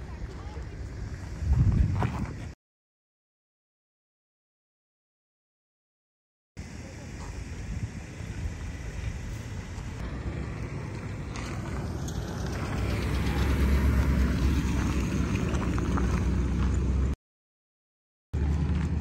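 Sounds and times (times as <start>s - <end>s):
vehicles rolling past: 7.4s - 17.2s, 18.4s - 19.0s
truck driving over gravel: 9.0s - 17.2s, 18.4s - 19.0s.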